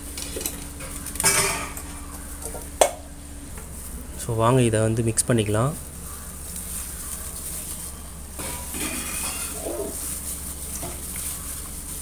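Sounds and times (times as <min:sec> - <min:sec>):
low background hum: 0:00.0 - 0:12.0
hand mixing marinade in metal bowl: 0:04.1 - 0:12.0.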